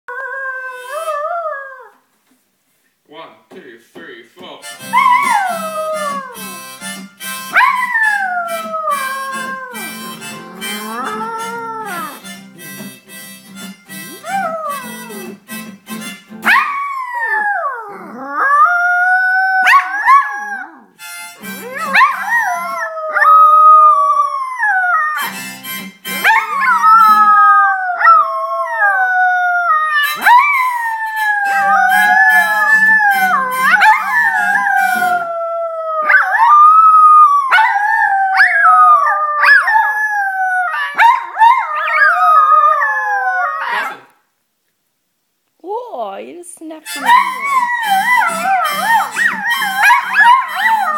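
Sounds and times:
music: 4.4s - 16.9s, 21.0s - 24.6s, 25.2s - 28.4s, 30.0s - 35.4s, 46.8s - 50.9s
dogs howling: 4.9s - 6.6s, 7.6s - 12.2s, 14.1s - 15.4s, 16.5s - 20.9s, 21.6s - 25.3s, 26.2s - 44.0s, 47.0s - 50.9s.

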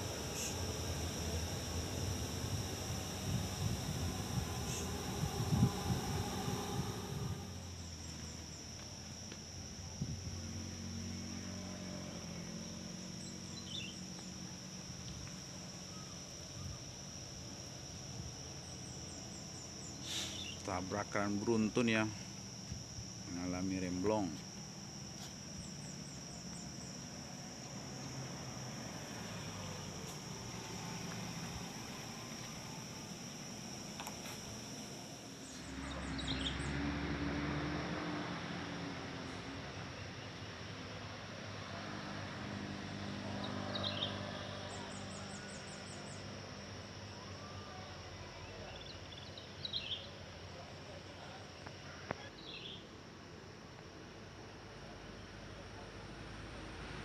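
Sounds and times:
rapid high ticking trill: 0.0s - 7.8s
low engine rumble: 0.0s - 9.0s, 25.8s - 40.3s
insects calling: 0.0s - 57.0s.

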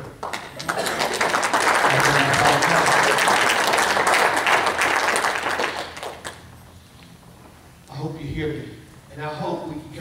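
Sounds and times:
crowd applauding: 0.2s - 6.5s.

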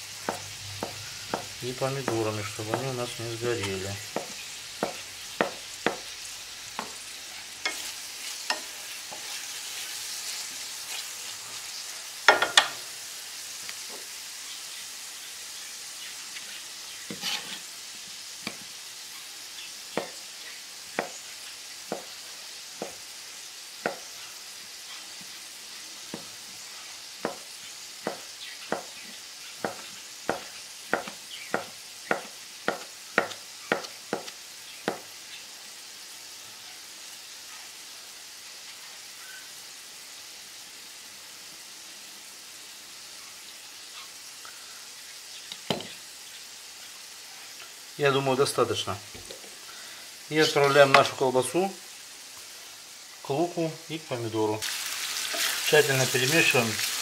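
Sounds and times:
onions frying in a pan: 0.0s - 57.0s
knife chopping on cutting board: 0.2s - 3.0s, 4.1s - 6.0s, 28.0s - 28.9s, 29.6s - 35.1s.

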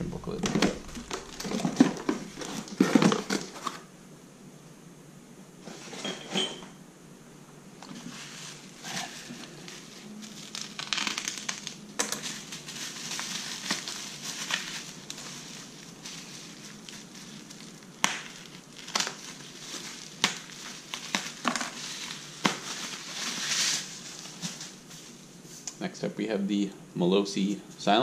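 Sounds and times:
bubble wrap crinkling: 0.3s - 3.9s, 7.8s - 25.6s
bubble wrap snaps: 8.9s - 24.8s.

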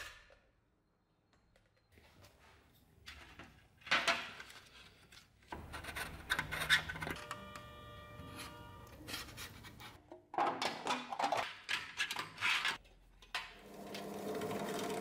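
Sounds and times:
marker scraping on metal: 8.2s - 10.0s.

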